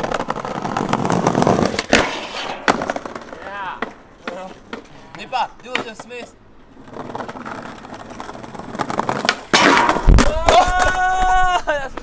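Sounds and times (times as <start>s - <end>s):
skateboard grinding on metal bench: 0.0s - 3.4s, 6.6s - 10.2s
skateboard wheels rolling on bricks: 0.0s - 12.0s.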